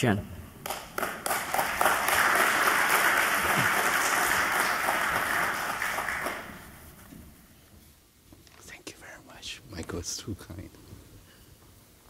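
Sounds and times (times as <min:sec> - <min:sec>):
audience applauding: 0:00.6 - 0:07.0.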